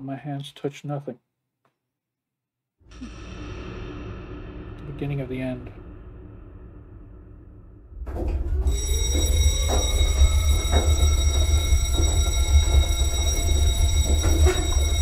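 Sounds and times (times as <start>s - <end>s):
high ringing tone: 8.6s - 15.0s.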